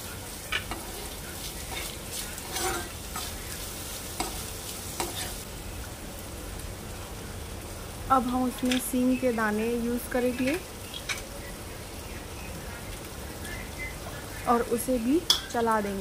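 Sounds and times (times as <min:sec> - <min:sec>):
spoon stirring in pan: 0:00.0 - 0:05.4
vegetables sizzling in oil: 0:00.0 - 0:16.0.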